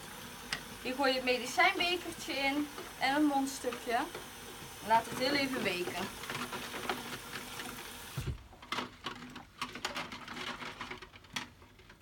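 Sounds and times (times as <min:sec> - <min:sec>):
tap water running into sink: 0:00.0 - 0:08.4.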